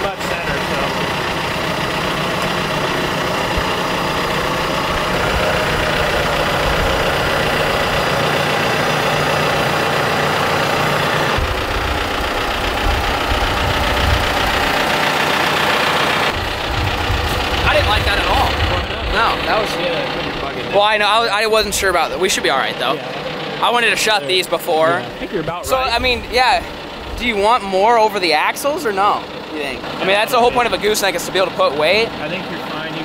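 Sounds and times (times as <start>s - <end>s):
tractor diesel engine running: 0.0s - 33.0s.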